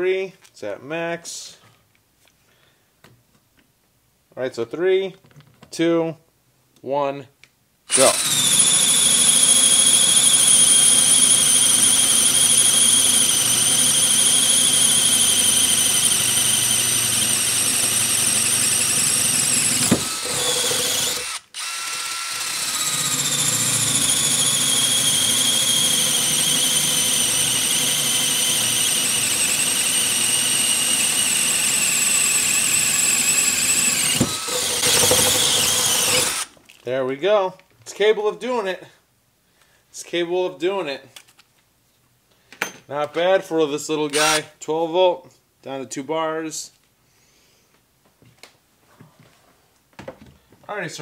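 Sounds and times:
electric screwdriver whine: 0:07.9 - 0:36.5.

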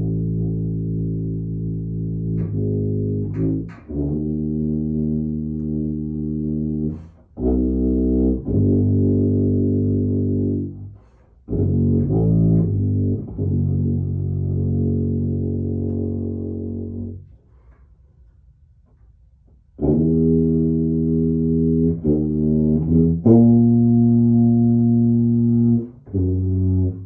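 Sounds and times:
tuba playing low notes: 0:00.0 - 0:27.0.

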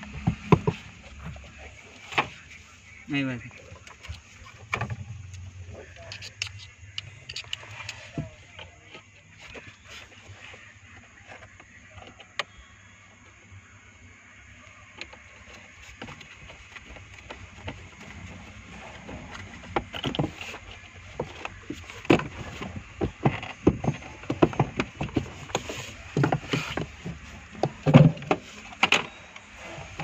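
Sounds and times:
hard parts knocking and clunking: 0:00.0 - 0:02.4, 0:15.0 - 0:30.0.

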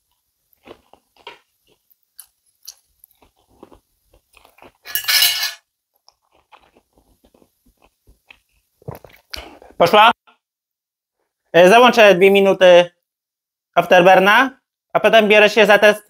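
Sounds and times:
person chewing: 0:00.0 - 0:05.0, 0:05.9 - 0:10.4
cutlery clicking on plate: 0:04.9 - 0:05.6.

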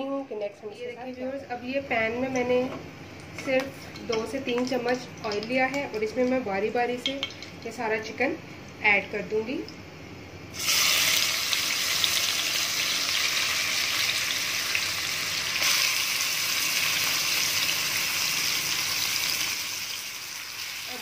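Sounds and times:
chicken sizzling in hot oil: 0:10.5 - 0:21.0.

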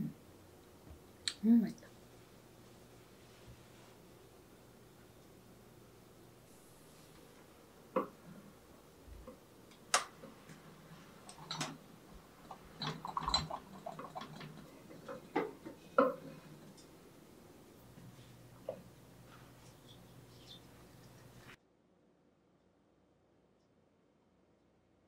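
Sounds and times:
ceramic cups rattling: 0:11.1 - 0:16.8.

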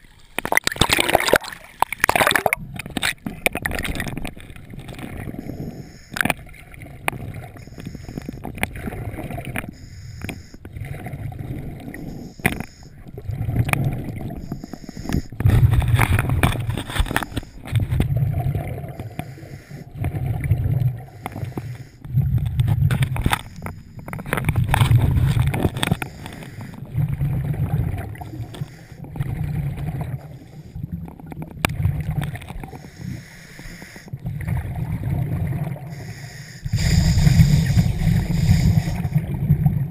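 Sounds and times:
exhaled bubbles rumbling: 0:00.0 - 0:09.8, 0:10.6 - 0:19.2, 0:19.8 - 0:32.8, 0:34.1 - 0:36.0, 0:36.7 - 0:39.9
regulator hissing inhalations: 0:09.7 - 0:10.6, 0:14.4 - 0:15.4, 0:19.0 - 0:19.9, 0:32.7 - 0:34.1, 0:35.9 - 0:39.2.

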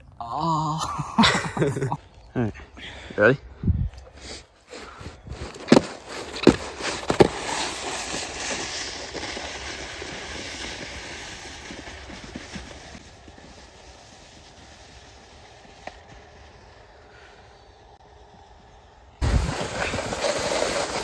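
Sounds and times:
snowboard scraping icy snow: 0:04.2 - 0:21.0
snowboard knocks: 0:05.6 - 0:08.2.

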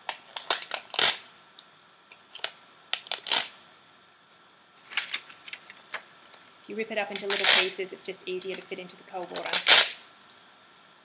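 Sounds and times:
gelatin sheets crackling when torn: 0:00.0 - 0:03.6, 0:07.1 - 0:07.8, 0:08.5 - 0:10.1.

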